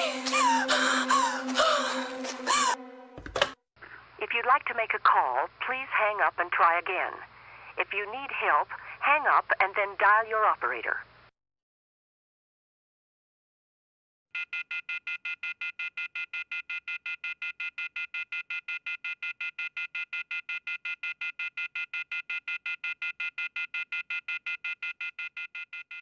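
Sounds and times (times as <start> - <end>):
telephone off-hook warning tone: 14.4 - 26.0.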